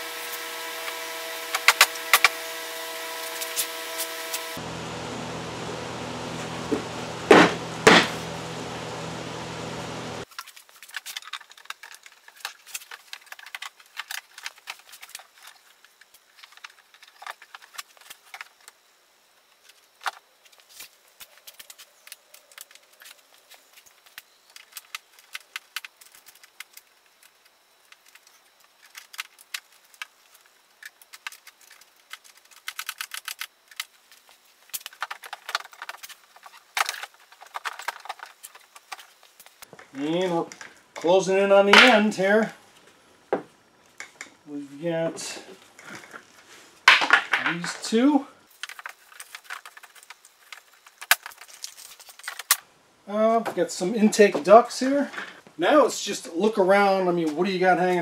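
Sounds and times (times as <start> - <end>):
steady noise: 0.0 - 10.3
plastic parts clicking and rattling: 10.3 - 18.8, 19.6 - 41.1, 48.5 - 52.6.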